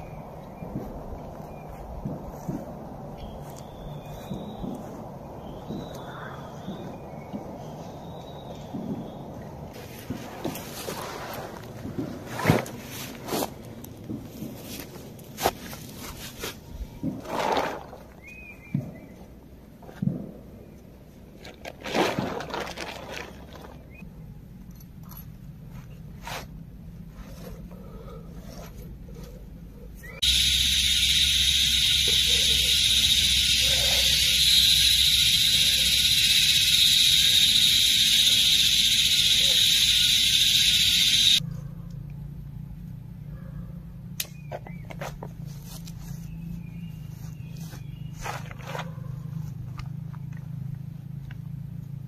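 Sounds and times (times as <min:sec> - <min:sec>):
bird calls: 0:03.1 - 0:09.4, 0:30.0 - 0:41.4
tent fabric scraping and rustling: 0:09.7 - 0:13.8
loud high-pitched hiss: 0:30.2 - 0:41.4.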